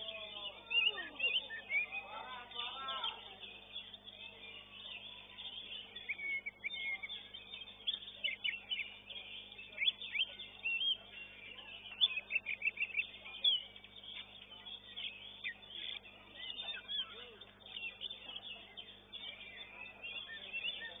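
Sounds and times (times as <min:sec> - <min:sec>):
birds singing whistled notes: 0:00.0 - 0:21.0.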